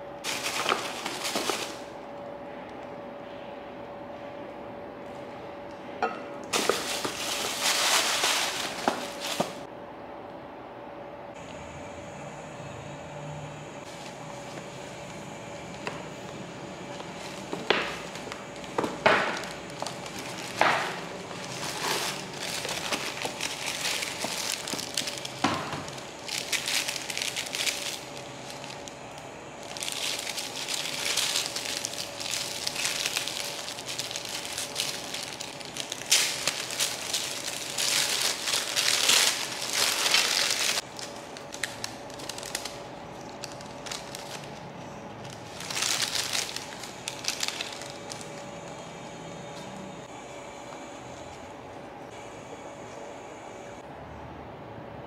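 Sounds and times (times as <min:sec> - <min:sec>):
paper and tissue crinkling: 0:00.2 - 0:01.9, 0:06.5 - 0:09.7, 0:16.9 - 0:48.8.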